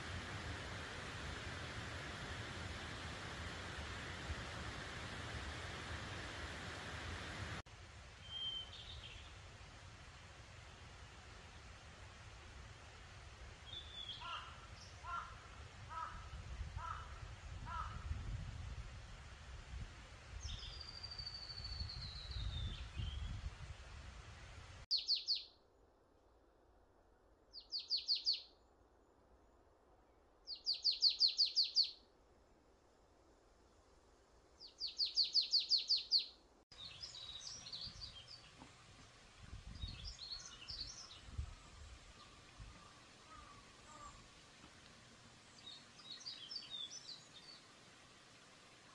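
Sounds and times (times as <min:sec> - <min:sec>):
bird singing whistled notes: 0:08.2 - 0:09.3, 0:20.5 - 0:23.4, 0:24.9 - 0:25.6, 0:27.6 - 0:28.6, 0:30.5 - 0:32.0, 0:34.6 - 0:38.5, 0:45.6 - 0:47.6
crow cawing: 0:14.2 - 0:18.0, 0:43.3 - 0:44.2.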